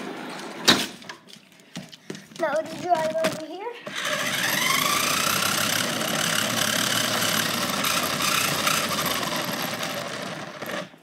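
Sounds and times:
toy car wheels rattling: 2.4s - 11.0s
toy car motor whining: 3.9s - 10.9s.

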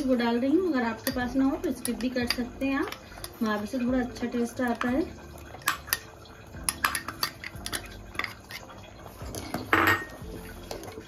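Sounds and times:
ladle scraping a pot: 1.0s - 11.0s
ladle clinking on glass and steel: 4.8s - 10.2s.

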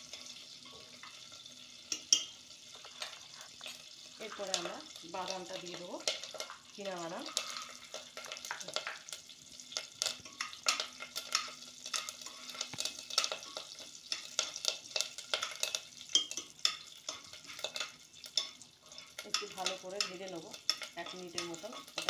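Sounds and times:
hot oil sizzling: 0.0s - 22.0s
spoon scraping metal pot: 1.9s - 4.7s, 7.2s - 9.0s, 10.0s - 22.0s.

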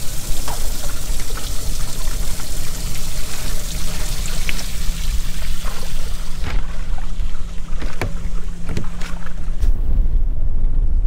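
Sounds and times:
water sloshing against boat hull: 3.3s - 10.1s
wind rumbling on microphone: 3.5s - 11.0s.

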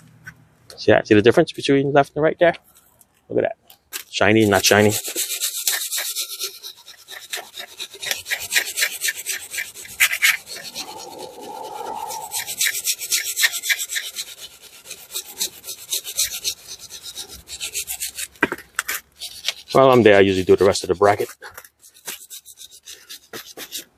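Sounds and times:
wire brush scrubbing metal: 4.2s - 18.4s, 19.2s - 23.8s.

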